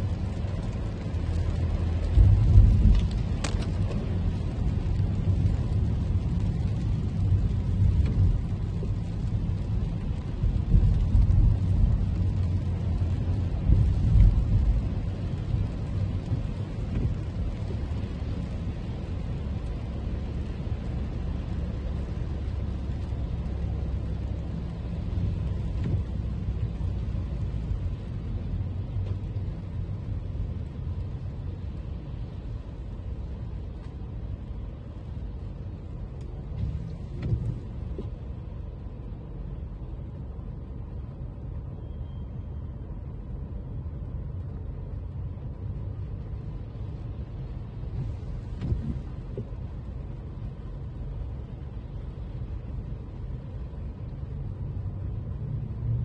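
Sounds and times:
low road rumble: 0.0 - 56.0
tyre hiss on wet road: 46.2 - 54.7.

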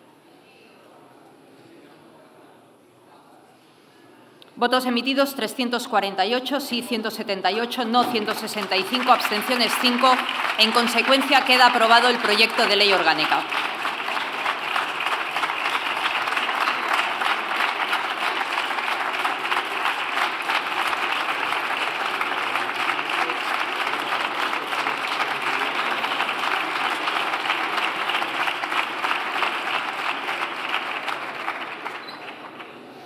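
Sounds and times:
crowd applauding: 7.5 - 33.0.

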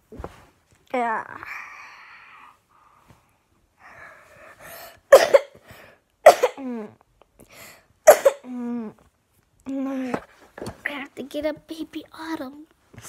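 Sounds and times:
person coughing loudly: 5.1 - 5.6, 6.2 - 6.8, 8.1 - 8.5.

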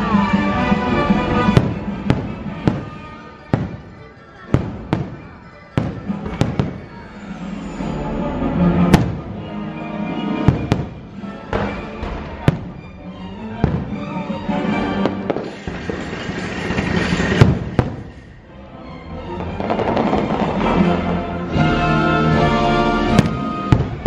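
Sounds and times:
show music: 0.0 - 24.0
fireworks bangs: 1.0 - 7.8, 8.9 - 9.4, 10.4 - 12.8, 13.6 - 14.3, 15.0 - 18.3, 19.4 - 21.2, 23.0 - 24.0.

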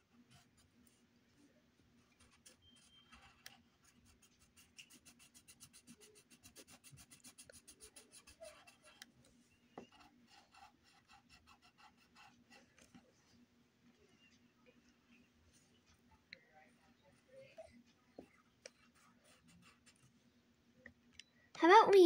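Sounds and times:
pencil scribbling on paper: 2.1 - 9.1, 9.8 - 13.1, 16.7 - 20.2.

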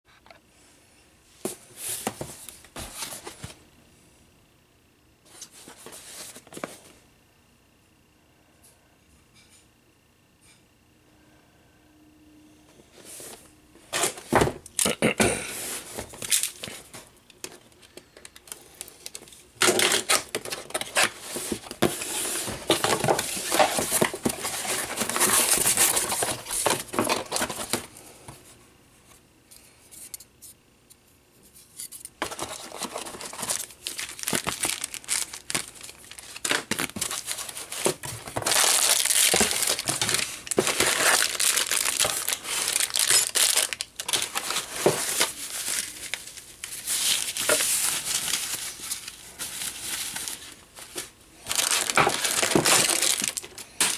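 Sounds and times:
packaging rustling and tearing: 15.8 - 27.9, 32.2 - 53.9.

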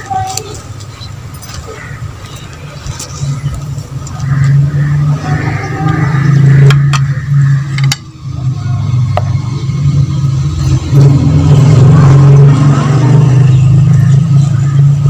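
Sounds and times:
low engine-like drone: 0.0 - 15.0
sharp clicks: 6.6 - 8.1.

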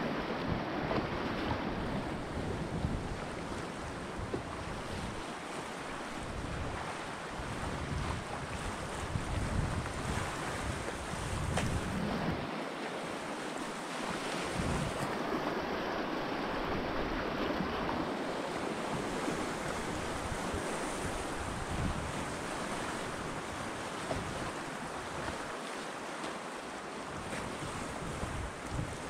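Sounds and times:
wind buffeting microphone: 0.0 - 5.2, 6.2 - 12.5, 14.5 - 15.4, 18.9 - 25.4, 27.2 - 29.0
river water rushing through rapids: 12.1 - 21.7.

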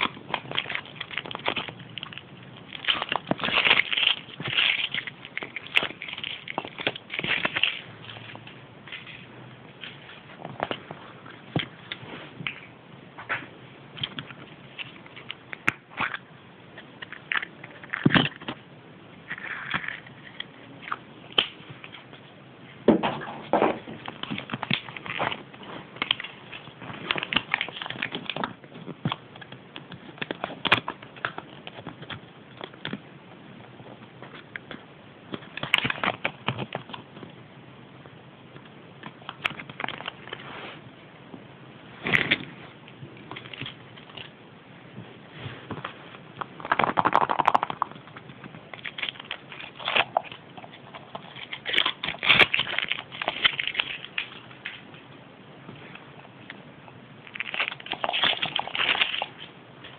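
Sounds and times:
foil wrapper crinkling: 0.0 - 12.6, 23.8 - 32.9, 46.4 - 54.9, 57.2 - 59.9
paper leaflet crinkling: 45.4 - 55.0, 57.2 - 59.9.

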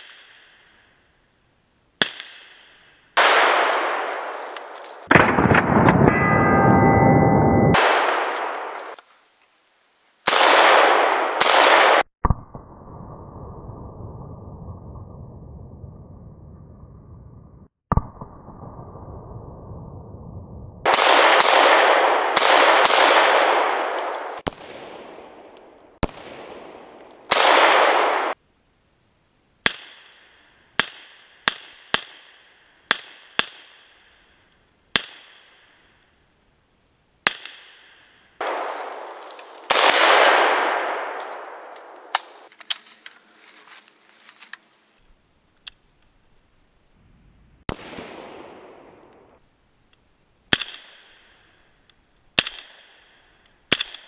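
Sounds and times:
rifle shots: 3.2 - 6.6, 7.7 - 9.0, 10.3 - 12.1, 20.8 - 28.4, 38.4 - 42.5, 47.7 - 49.4
gunshot echo: 3.2 - 7.0, 7.7 - 9.0, 10.3 - 12.7, 20.8 - 25.4, 26.0 - 28.4, 38.4 - 42.5, 47.7 - 49.4.

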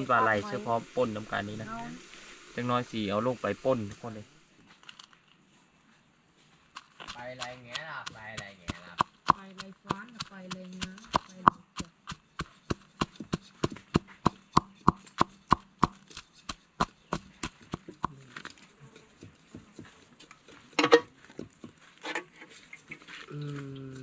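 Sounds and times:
wooden pestle pounding in mortar: 7.0 - 18.2.

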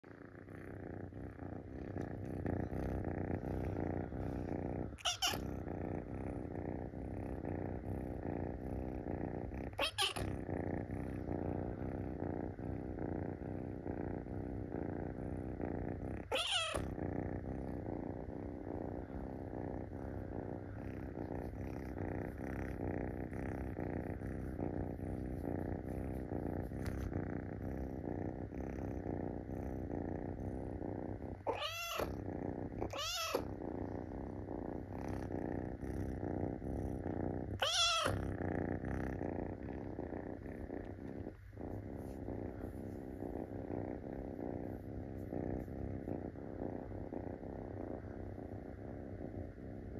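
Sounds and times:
kitten purring: 0.0 - 49.9
kitten meowing: 5.0 - 5.5, 9.8 - 10.2, 16.3 - 16.9, 31.5 - 32.1, 32.8 - 33.4, 37.6 - 38.2.

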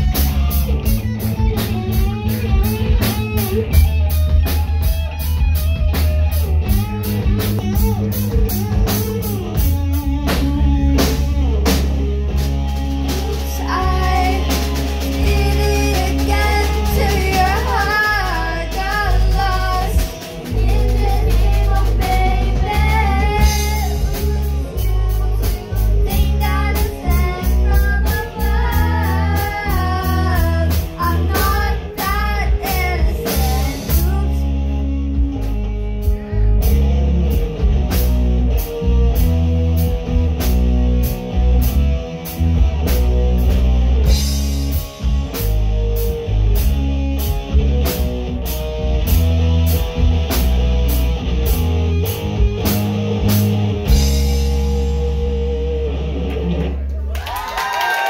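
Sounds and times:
live rock band playing: 0.0 - 58.0
person singing: 13.4 - 34.8.

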